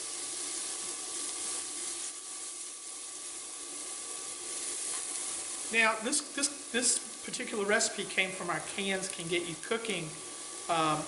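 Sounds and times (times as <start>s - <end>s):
spatula stirring in a skillet: 0.0s - 7.4s
vegetables sizzling in a skillet: 0.0s - 11.0s.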